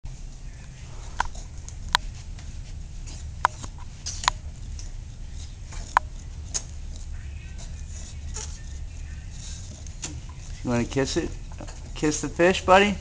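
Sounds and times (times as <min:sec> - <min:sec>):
steady low rumble: 0:00.1 - 0:13.0
sharp squeaks: 0:05.8 - 0:12.2.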